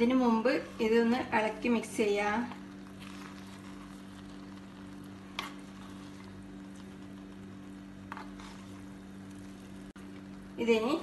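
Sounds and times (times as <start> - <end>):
steady low hum: 0.0 - 11.0
spoon scraping rice in pot: 2.5 - 7.1, 8.0 - 9.8.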